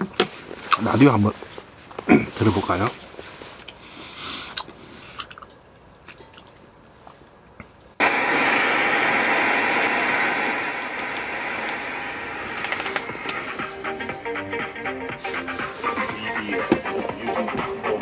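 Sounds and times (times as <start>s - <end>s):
radio static hiss: 8.0s - 18.0s.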